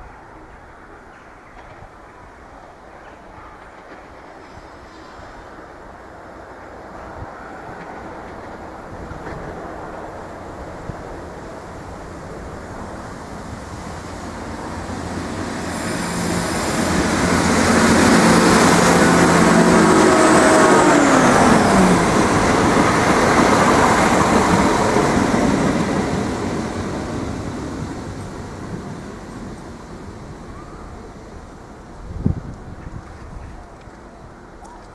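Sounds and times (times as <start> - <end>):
train wheels on rails: 0.6 - 34.9
diesel train engine hum: 7.8 - 34.6.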